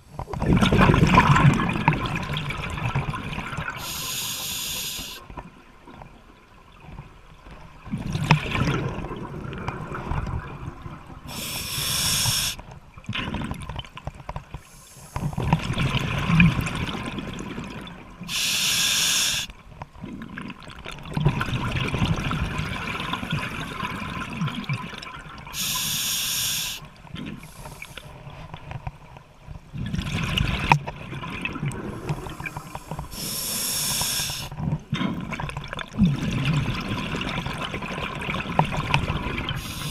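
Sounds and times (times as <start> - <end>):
gurgle of exhaled bubbles: 0.3 - 4.0, 7.8 - 11.4, 15.2 - 18.1, 20.0 - 25.6, 29.7 - 39.9
regulator hissing inhalation: 3.8 - 5.2, 11.3 - 12.6, 18.3 - 19.5, 25.6 - 26.8, 32.2 - 34.5, 39.6 - 39.9.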